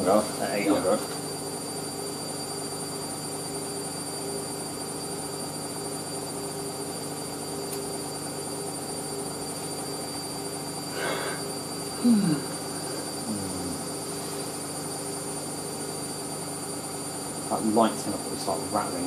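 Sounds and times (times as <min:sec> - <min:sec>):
washing machine spinning: 0:00.0 - 0:19.0.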